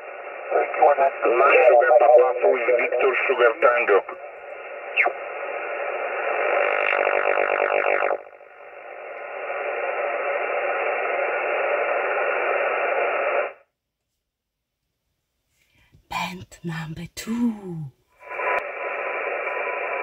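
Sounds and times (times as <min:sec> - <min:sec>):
radio receiver hiss and static: 0:00.0 - 0:13.7, 0:18.1 - 0:20.0.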